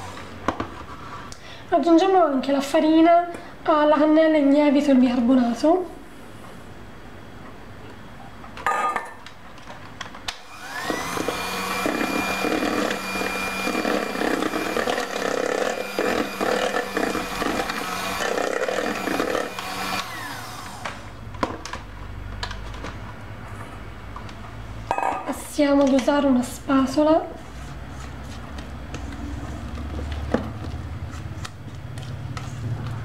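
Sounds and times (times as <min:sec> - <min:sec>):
electric hand mixer whine: 0:10.4 - 0:21.2.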